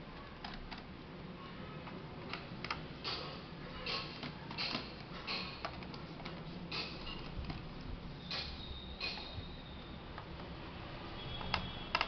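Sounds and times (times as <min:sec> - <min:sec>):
plastic and metal clicks: 0:11.4 - 0:12.0.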